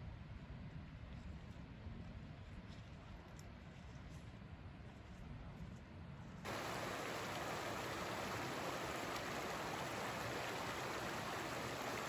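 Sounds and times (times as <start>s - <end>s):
running water rushing: 6.5s - 12.0s.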